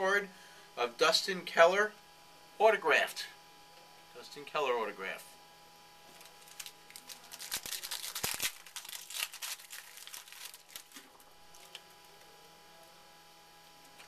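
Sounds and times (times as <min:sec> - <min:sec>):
card pack wrapper tearing: 0:06.1 - 0:11.8.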